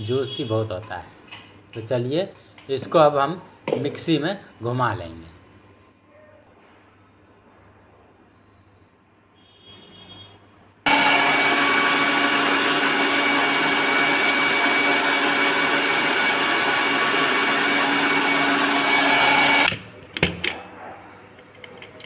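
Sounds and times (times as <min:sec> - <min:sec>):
mixer grinder whining: 0:10.9 - 0:19.7.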